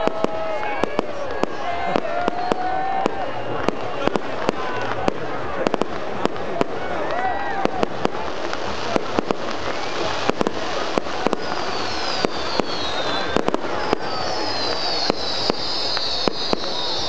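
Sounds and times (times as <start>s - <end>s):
whistling firework shells: 0.0s - 5.1s, 7.6s - 17.0s
firework bangs and cracks: 0.0s - 17.0s.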